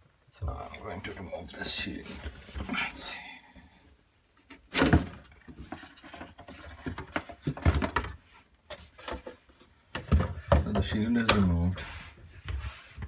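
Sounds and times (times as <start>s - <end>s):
clicks rattles and scrapes: 4.4s - 11.9s.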